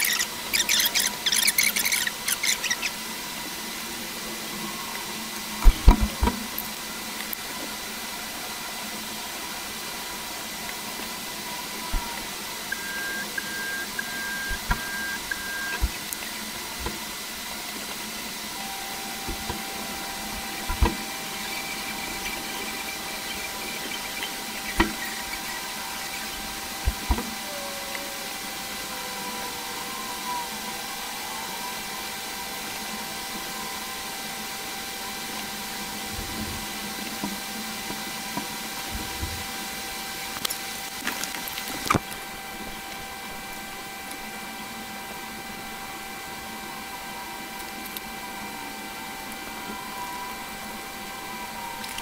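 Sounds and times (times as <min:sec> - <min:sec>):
background hiss: 0:00.0 - 0:52.0
faint constant tones: 0:00.0 - 0:52.0
quick beeps: 0:12.7 - 0:15.9
sharp clicks and knocks: 0:20.6 - 0:25.5.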